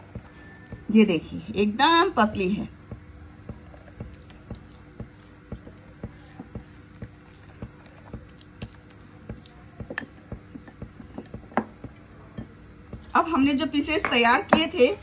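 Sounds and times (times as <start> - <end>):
batter stirred in glass bowl: 1.7 - 13.3.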